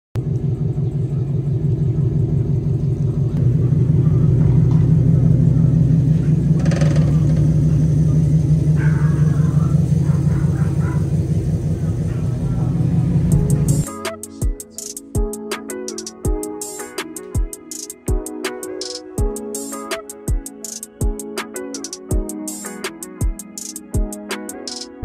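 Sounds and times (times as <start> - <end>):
car engine idling: 0.2 - 13.9.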